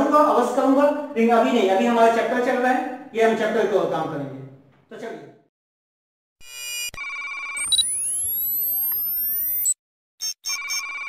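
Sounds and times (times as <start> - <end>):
electronic beeps: 6.4 - 11.0
rising sweeping electronic tones: 7.6 - 10.8.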